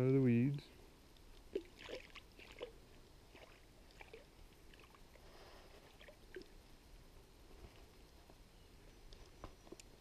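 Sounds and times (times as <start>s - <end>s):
fish splashing in water: 1.5s - 5.2s.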